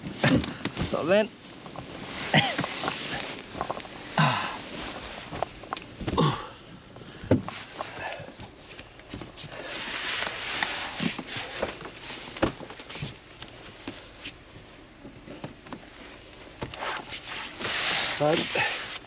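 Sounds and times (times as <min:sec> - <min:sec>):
person grunting: 0:04.2 - 0:04.6, 0:06.1 - 0:06.6
hands rubbing window: 0:16.6 - 0:19.0.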